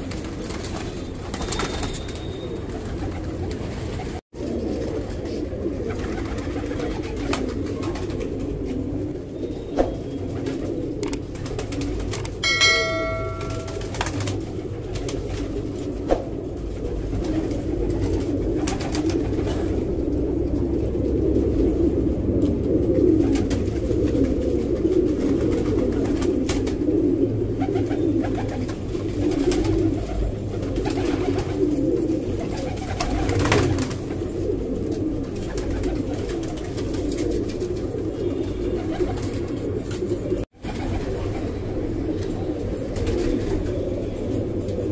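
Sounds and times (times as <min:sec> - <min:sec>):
pigeons cooing: 0:00.0 - 0:44.9
short ringing chime: 0:12.4 - 0:14.2.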